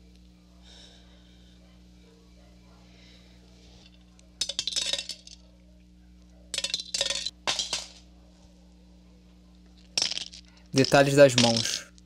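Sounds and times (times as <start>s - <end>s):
faint steady hum: 0.0s - 12.0s
dry beans clattering into metal bowl: 4.4s - 5.4s, 6.6s - 8.0s, 9.9s - 11.8s.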